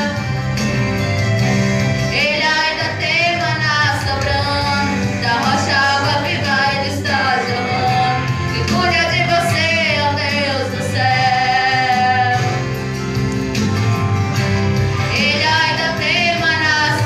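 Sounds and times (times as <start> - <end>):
instrumental accompaniment: 0.0 - 17.0
woman singing into a microphone: 2.1 - 12.7, 15.1 - 17.0.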